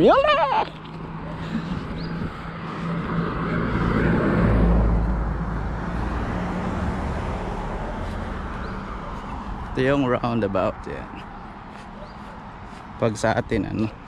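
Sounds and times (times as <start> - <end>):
car driving past: 1.2 - 9.8.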